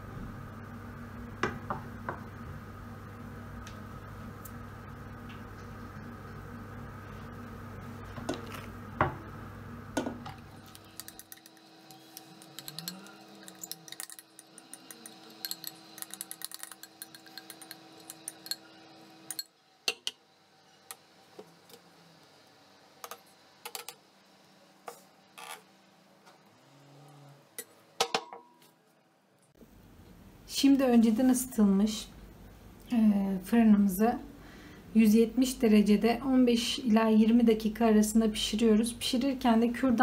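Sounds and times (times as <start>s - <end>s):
low steady hum: 0.0s - 40.0s
metal spoon scraping glass bowl: 10.7s - 19.5s.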